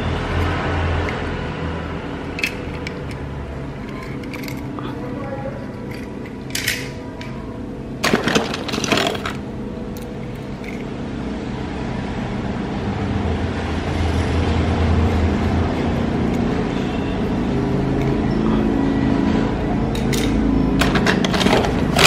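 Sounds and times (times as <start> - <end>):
toy vehicles clattering: 2.2 - 5.0, 5.6 - 7.4, 8.0 - 9.4, 19.9 - 22.0.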